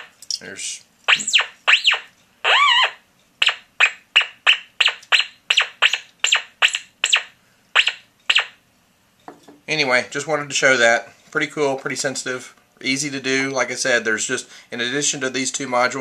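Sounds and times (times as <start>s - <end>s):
metal detector whistling chirps: 1.1s - 8.6s.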